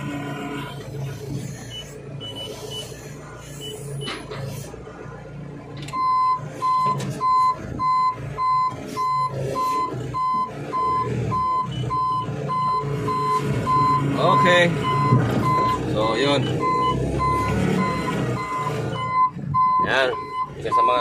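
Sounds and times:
reverse alarm beeping: 0:01.7 - 0:02.9, 0:05.9 - 0:21.0.

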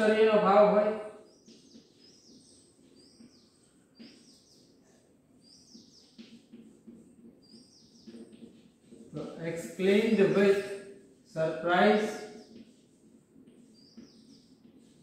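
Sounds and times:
chalk squeaking on blackboard: 0:05.6 - 0:09.4, 0:12.0 - 0:15.0.

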